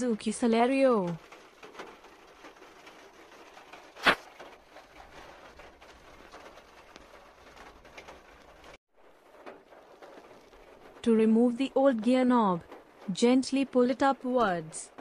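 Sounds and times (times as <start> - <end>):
sharp knock: 4.0 - 4.2.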